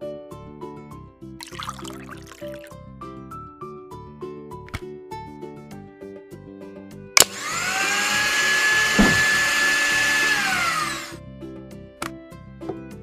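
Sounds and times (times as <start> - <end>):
background music: 0.0 - 13.0
blender switch click: 7.2 - 7.7
small blender motor whining: 7.2 - 11.2.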